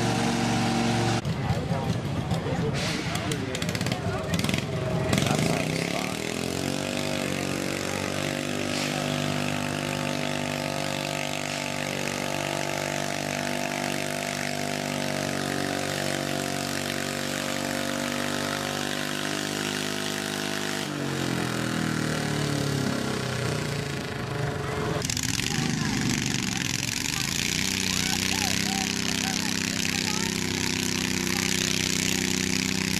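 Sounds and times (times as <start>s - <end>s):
tractor engine at full throttle: 0.0s - 32.9s.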